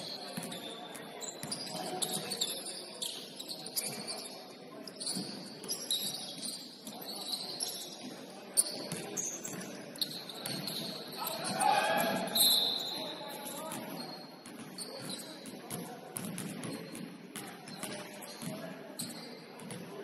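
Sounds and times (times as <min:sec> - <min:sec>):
shoes squeaking on gym floor: 0:00.0 - 0:15.4.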